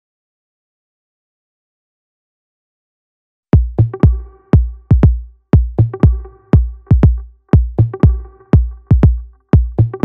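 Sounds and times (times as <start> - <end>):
drum machine kick beat: 3.6 - 10.0.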